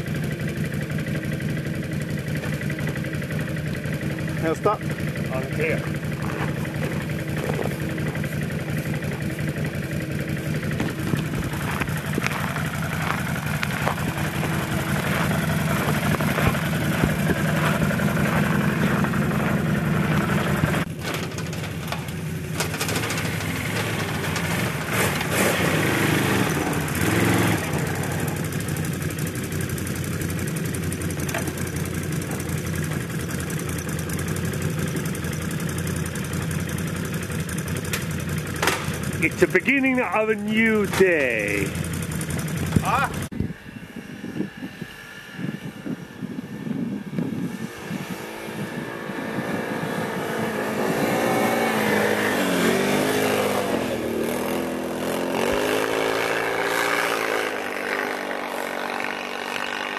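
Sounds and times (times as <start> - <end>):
atv engine running and revving: 0.0 - 59.9.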